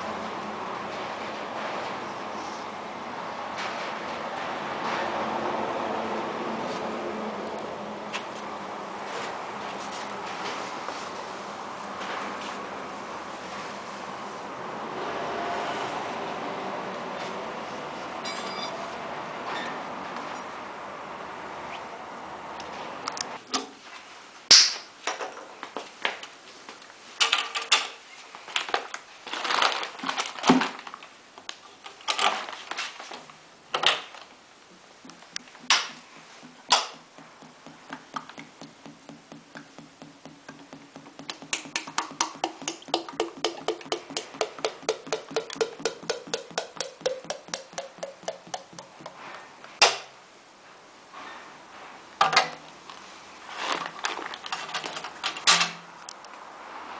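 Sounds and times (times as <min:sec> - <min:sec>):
metal pail knocking and clanking: 0:35.4 - 0:49.2
oil glugging into a jug: 0:39.2 - 0:49.2, 0:53.8 - 0:54.9.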